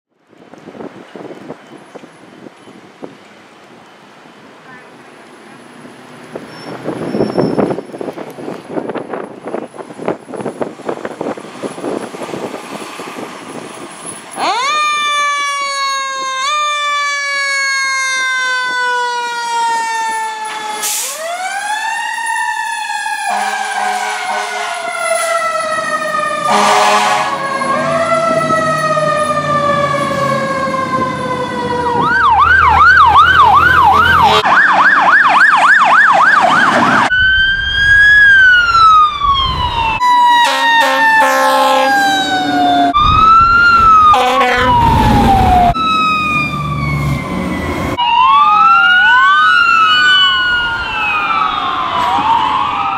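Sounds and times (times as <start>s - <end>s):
fire engine siren wailing: 6.2s - 52.9s
warbling yelp siren: 14.4s - 52.9s
horn blasts: 23.3s - 24.8s, 26.4s - 27.4s, 33.8s - 34.5s, 40.4s - 42.1s, 44.1s - 44.8s.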